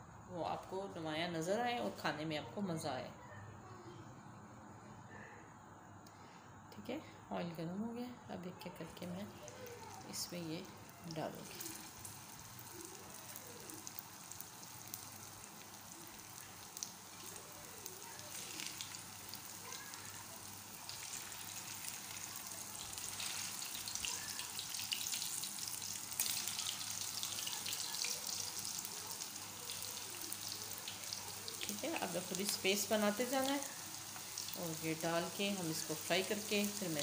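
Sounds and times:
chicken deep-frying in oil: 0:09.2 - 0:37.0.

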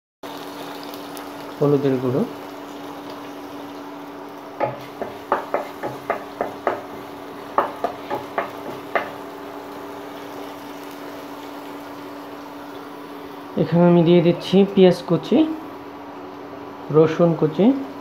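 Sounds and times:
paste sizzling in oil: 0:00.2 - 0:13.5
spatula knocking and scraping pot: 0:04.6 - 0:09.2.

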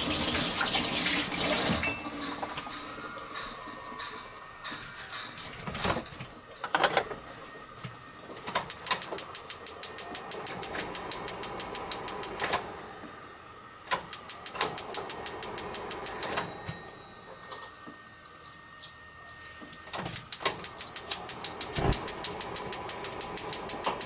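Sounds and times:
gas stove igniter ticking: 0:08.7 - 0:12.6, 0:13.9 - 0:16.4, 0:20.0 - 0:24.0.

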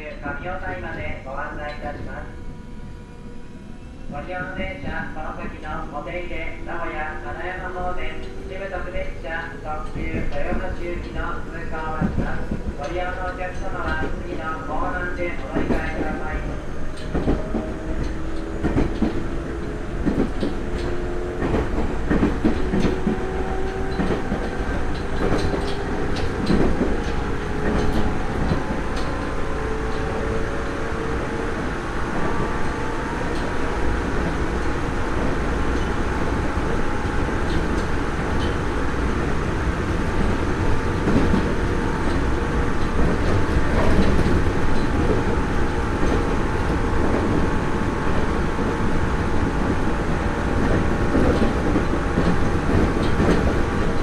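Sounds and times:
train rumble: 0:00.0 - 0:54.0
wheels clicking over rail joints: 0:16.9 - 0:30.8.

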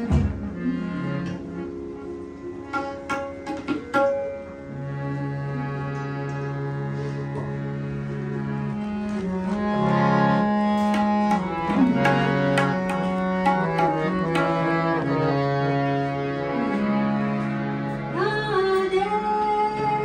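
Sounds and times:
harmonium chords: 0:00.0 - 0:20.0
tabla strokes: 0:02.6 - 0:04.7, 0:10.7 - 0:15.0.

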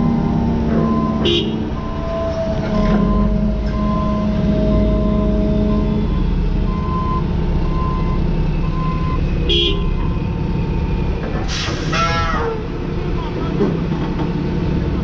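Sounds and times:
truck backup alarm beeping: 0:00.0 - 0:10.9
excavator diesel engine running: 0:00.0 - 0:15.0.

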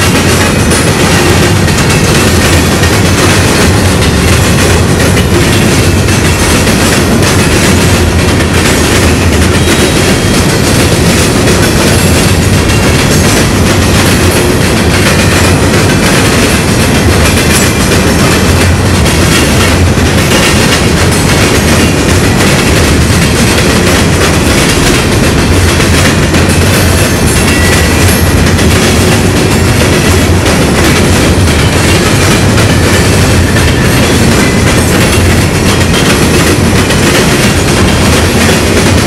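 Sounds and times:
freight train rolling past: 0:00.0 - 0:39.0
wheels clacking over crossings: 0:00.0 - 0:39.0.

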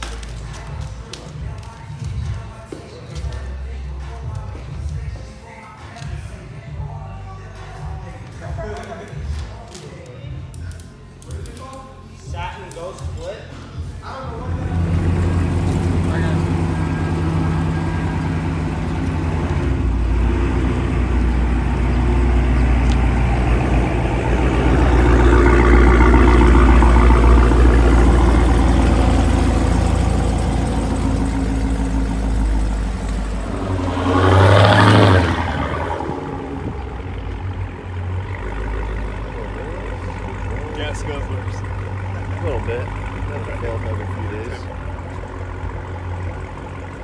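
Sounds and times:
car engines rumbling: 0:10.3 - 0:47.0.

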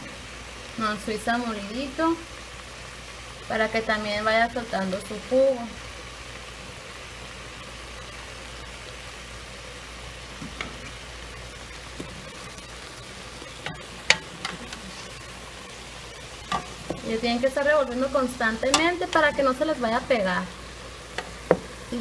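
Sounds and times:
zucchini sizzling in a pan: 0:00.0 - 0:22.0
wooden spatula clicking on pan: 0:13.6 - 0:14.9.

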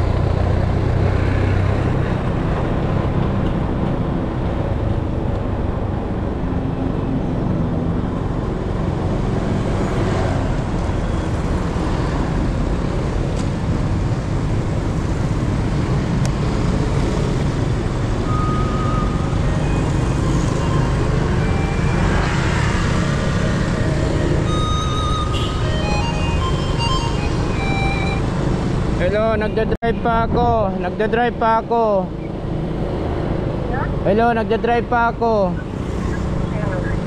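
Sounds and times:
vehicle road noise: 0:00.0 - 0:37.0
short high beep: 0:18.2 - 0:22.4
short high tones: 0:18.2 - 0:22.7, 0:23.6 - 0:28.4.

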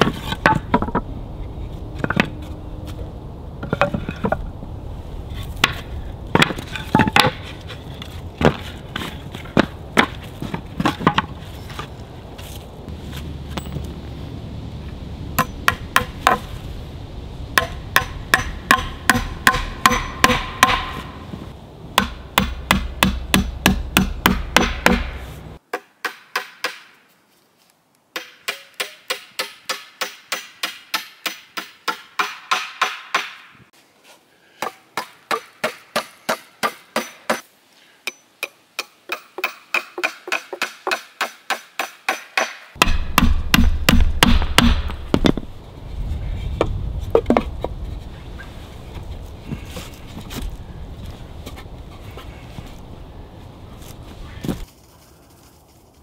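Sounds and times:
boards being laid out: 0:00.0 - 0:03.0, 0:03.6 - 0:04.5, 0:05.3 - 0:13.9, 0:44.8 - 0:45.5, 0:46.5 - 0:48.2
hammer blows on wooden boards: 0:15.4 - 0:16.5, 0:17.6 - 0:27.0, 0:28.2 - 0:33.7, 0:38.1 - 0:45.5.

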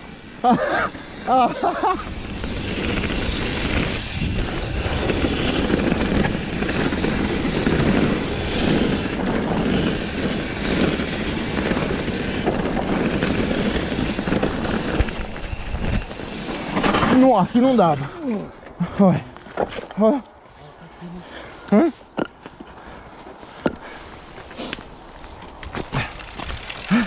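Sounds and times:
wind rushing over microphone: 0:00.9 - 0:17.7
bike tyres rumbling on gravel: 0:00.9 - 0:20.0, 0:22.6 - 0:27.0.

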